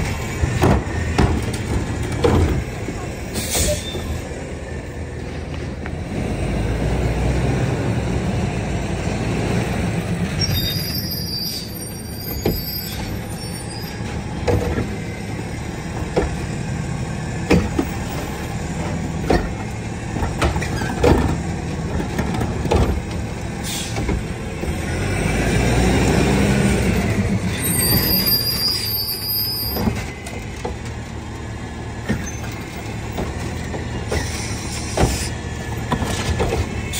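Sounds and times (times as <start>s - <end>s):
cart knocking and clanking: 0.0s - 4.2s, 14.0s - 15.0s, 17.4s - 24.4s, 29.6s - 36.9s
garbage truck engine revving: 24.2s - 28.3s.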